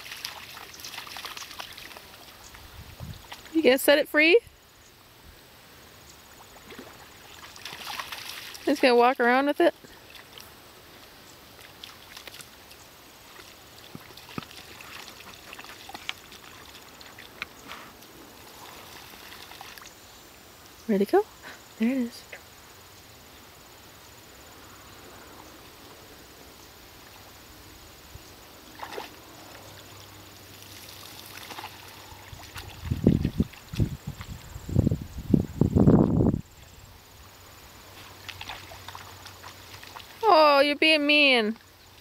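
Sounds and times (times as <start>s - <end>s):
small sharp splashes: 0.0s - 2.6s, 3.2s - 3.6s, 6.3s - 8.9s, 9.8s - 10.6s, 11.5s - 20.0s, 28.6s - 34.3s, 37.9s - 40.6s
dogs wading through water: 0.0s - 4.3s, 6.0s - 20.4s, 28.4s - 34.4s, 36.6s - 42.0s.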